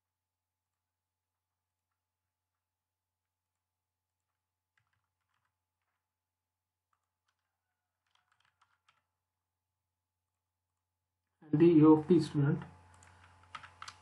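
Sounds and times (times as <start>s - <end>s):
keyboard typing: 4.2s - 6.1s, 6.9s - 9.1s, 12.8s - 14.0s.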